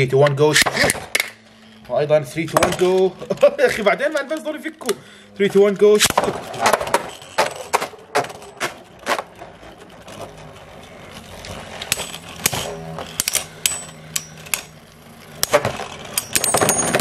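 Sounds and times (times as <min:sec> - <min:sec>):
spinning top whir: 0:06.2 - 0:17.0.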